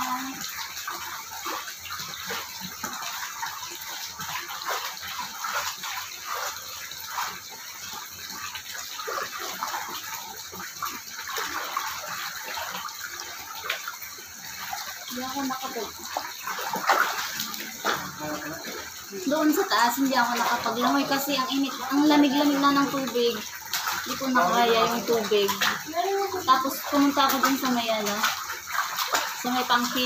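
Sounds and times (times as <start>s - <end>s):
water pouring into pool: 0.0s - 30.0s.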